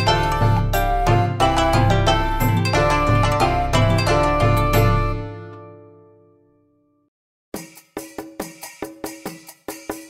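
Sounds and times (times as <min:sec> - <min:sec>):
plucked-string melody: 0:00.0 - 0:06.8.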